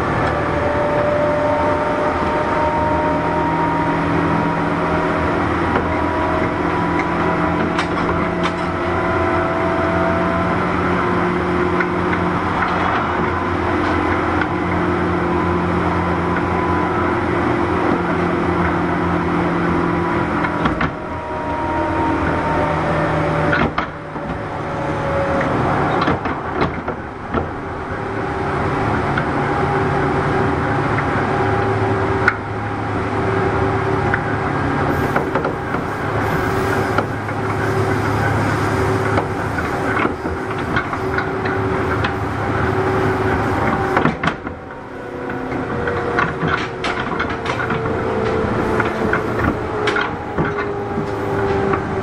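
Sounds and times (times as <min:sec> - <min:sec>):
wheels rumbling on rail: 0:00.0 - 0:52.0
electric train motor tones: 0:33.4 - 0:52.0.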